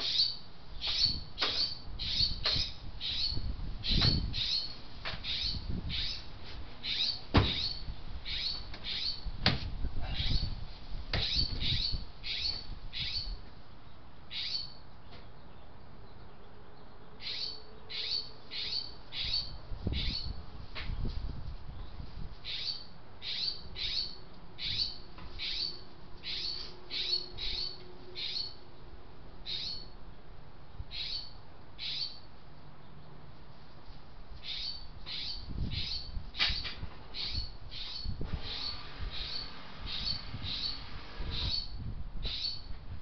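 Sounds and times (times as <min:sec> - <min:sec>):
small bird chirping: 0:00.0 - 0:09.3, 0:11.2 - 0:13.4, 0:17.2 - 0:20.4, 0:21.8 - 0:28.6, 0:29.4 - 0:30.0, 0:30.9 - 0:32.3, 0:34.4 - 0:42.7.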